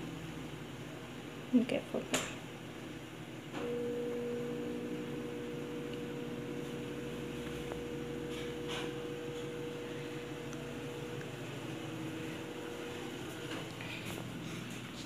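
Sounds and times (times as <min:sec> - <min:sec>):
motor humming with tones: 0:03.5 - 0:14.5.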